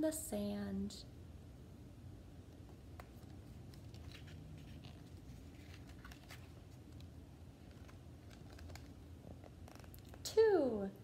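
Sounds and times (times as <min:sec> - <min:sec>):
low room hum: 0:00.0 - 0:11.0
book pages rustling and turning: 0:02.6 - 0:10.2.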